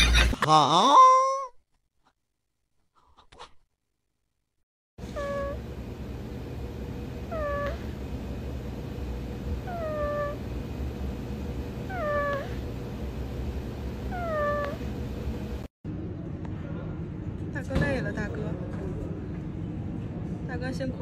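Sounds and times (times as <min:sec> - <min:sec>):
cat giving squeaky mews: 0:05.2 - 0:05.6.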